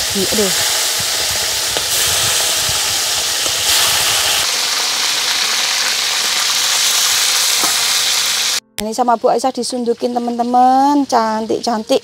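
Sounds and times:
hot oil sizzling: 0.0s - 8.6s.

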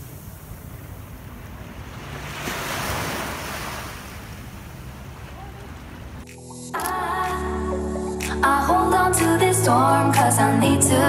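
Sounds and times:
ocean surf washing in: 0.0s - 6.6s.

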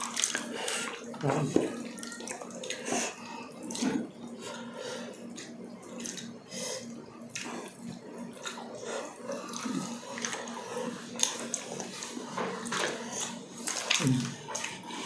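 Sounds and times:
faint steady hum: 0.0s - 15.0s
wet chewing and lip smacks: 7.3s - 15.0s.

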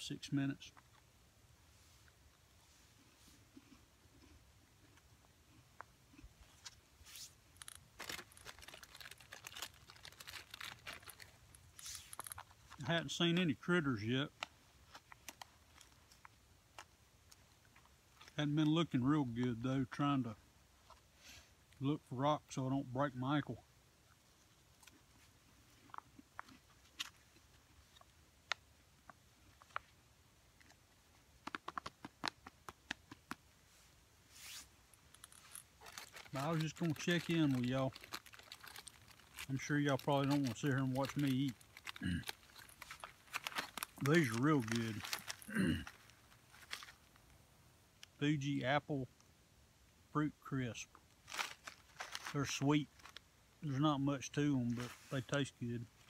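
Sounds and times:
plastic packaging crinkling: 7.6s - 12.8s, 35.2s - 47.1s, 51.2s - 53.2s.

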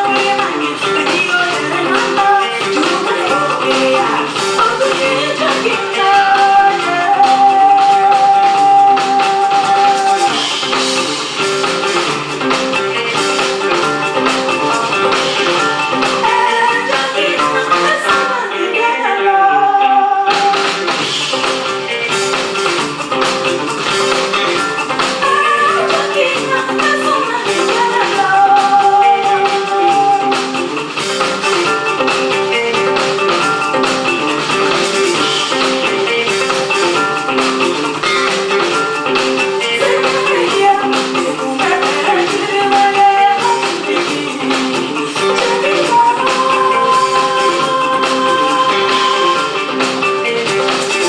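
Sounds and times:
woman singing: 0.0s - 10.6s, 12.8s - 20.9s, 24.4s - 30.8s, 38.5s - 50.0s
guitar accompaniment: 0.0s - 51.0s
live band music: 0.0s - 51.0s.

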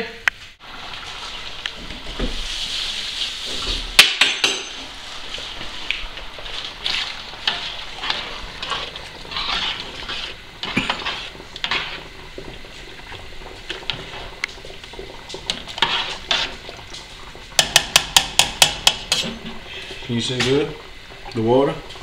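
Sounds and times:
liquid swishing in a pot: 4.8s - 22.0s
metal spoon scraping a pot: 7.4s - 12.1s, 15.5s - 16.6s.

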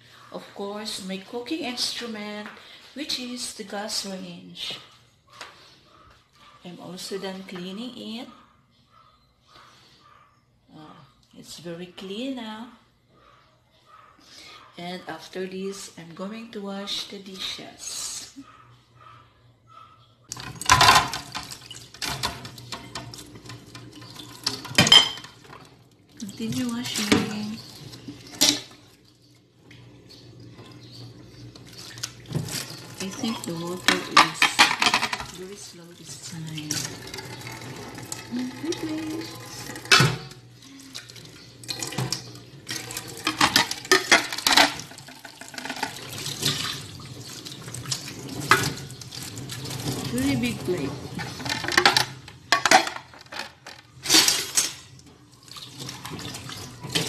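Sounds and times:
dishes clattering: 20.3s - 25.7s, 26.4s - 28.8s, 31.7s - 35.4s, 36.7s - 40.4s, 41.6s - 46.8s, 48.3s - 50.1s, 51.1s - 54.9s
tap water running into sink: 20.3s - 52.3s, 54.1s - 57.0s
dishes clinking: 20.5s - 25.5s, 43.2s - 46.0s, 51.2s - 53.5s.

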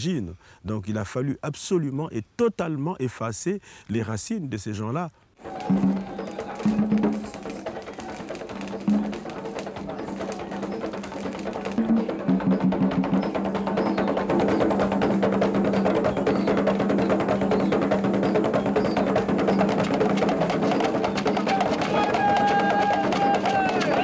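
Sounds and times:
hand drums playing fast rhythm: 5.4s - 24.0s.

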